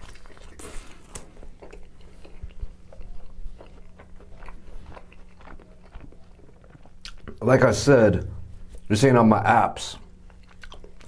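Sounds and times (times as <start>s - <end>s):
biting into pizza: 0.0s - 7.4s
wet chewing sounds: 0.0s - 7.4s, 10.0s - 11.0s.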